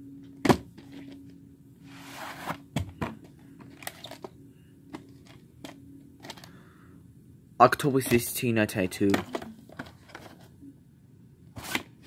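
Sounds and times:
cardboard sleeve rustle: 1.9s - 2.7s.

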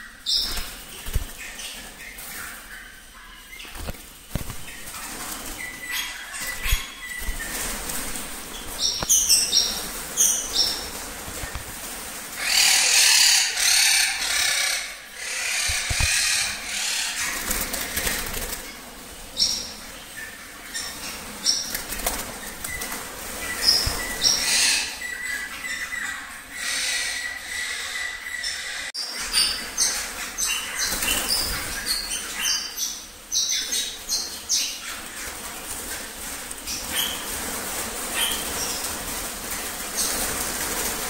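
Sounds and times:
birds flapping wings: 0.4s - 2.3s, 3.6s - 5.8s, 6.4s - 13.6s, 15.6s - 19.0s, 21.2s - 24.8s, 35.0s - 41.0s.

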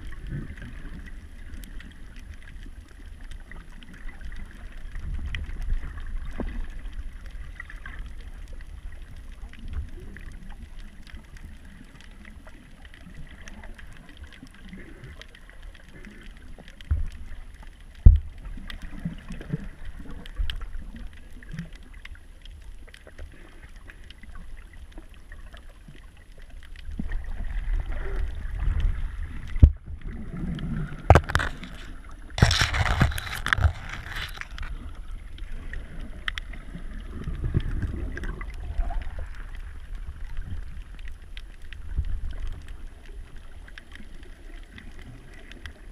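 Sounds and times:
underwater rumble of moving water: 0.0s - 45.9s
sharp knocks underwater: 18.0s - 18.4s, 29.5s - 30.2s, 30.8s - 34.8s.

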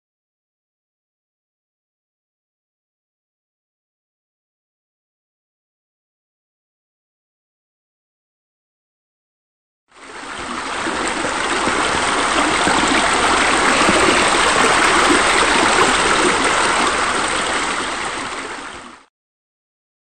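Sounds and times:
rush of running water: 9.9s - 19.1s.

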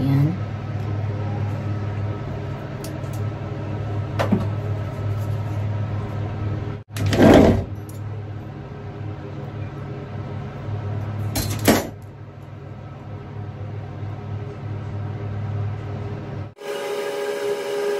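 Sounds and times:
kitchen appliance humming: 12.3s - 17.9s.

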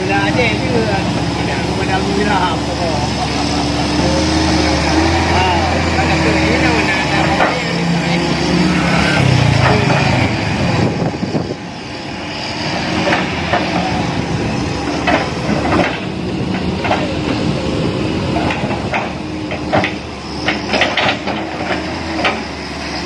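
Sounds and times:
excavator diesel engine running: 0.0s - 23.0s
metal clanks and knocks: 14.8s - 17.4s, 18.3s - 22.5s.

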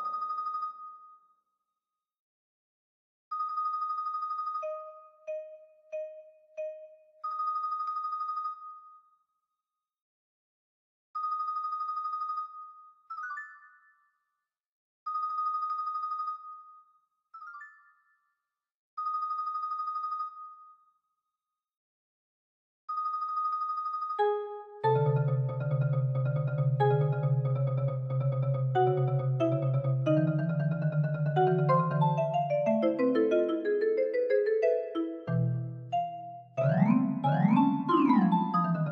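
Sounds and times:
loud low marimba passage: 25.0s - 38.9s.

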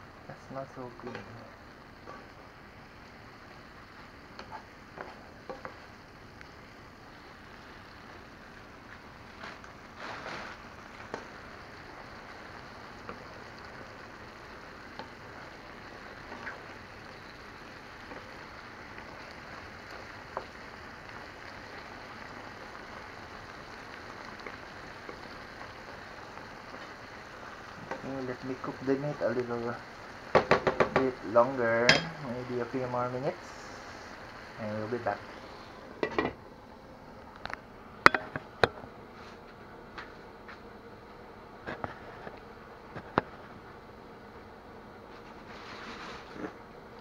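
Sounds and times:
food sizzling in a frying pan: 0.0s - 39.3s, 41.6s - 47.0s
wooden spatula scraping a pan: 9.3s - 11.3s, 45.1s - 46.6s.

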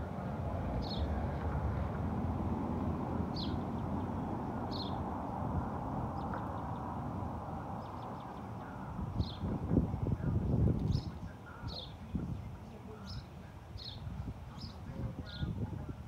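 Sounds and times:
low outdoor rumble: 0.0s - 16.0s
bird chirping: 3.3s - 5.0s, 10.8s - 15.6s.

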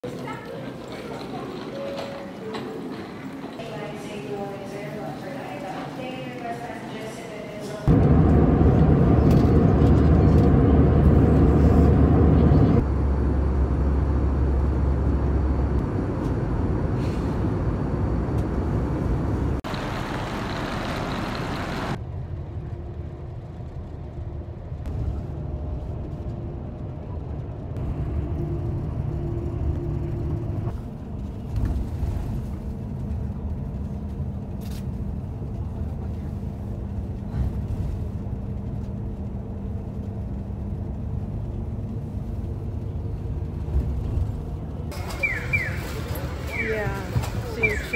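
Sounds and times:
airliner cabin rush: 0.0s - 12.9s, 24.8s - 47.9s
train running rumble: 7.8s - 47.9s.

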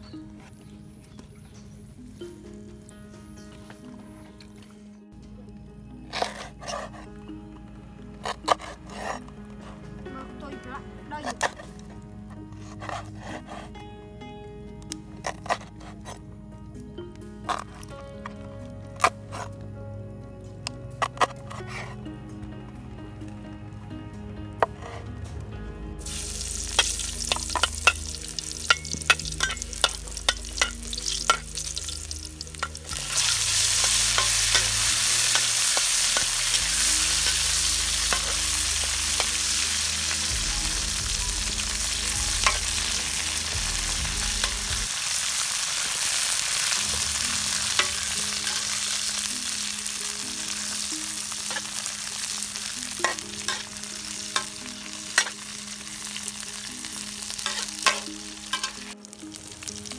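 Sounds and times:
spatula scraping a wok: 6.1s - 7.1s, 8.2s - 10.0s, 11.2s - 13.8s, 15.2s - 16.2s, 17.5s - 18.0s, 19.0s - 19.6s, 21.0s - 22.0s, 24.6s - 25.1s, 26.0s - 49.6s, 50.5s - 55.6s, 57.3s - 59.0s
vegetables sizzling in oil: 26.0s - 59.9s.

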